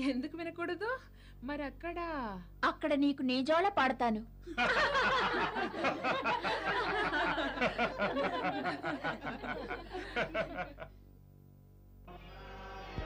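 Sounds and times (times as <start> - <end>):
people laughing: 4.5 - 11.0.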